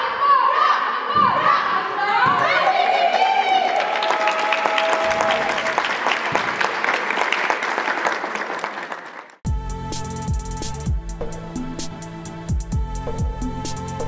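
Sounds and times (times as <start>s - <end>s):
people clapping hands: 2.4s - 9.4s
music with a beat: 9.5s - 14.0s.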